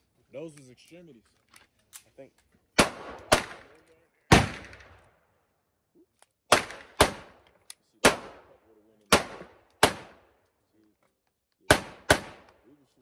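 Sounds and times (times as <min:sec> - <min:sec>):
handgun shots: 0:06.5 - 0:07.4, 0:09.1 - 0:10.2, 0:11.7 - 0:12.6.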